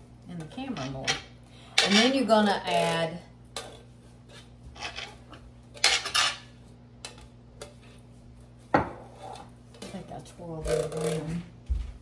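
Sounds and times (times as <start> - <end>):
spoon scraping a tin can: 1.8 - 8.1.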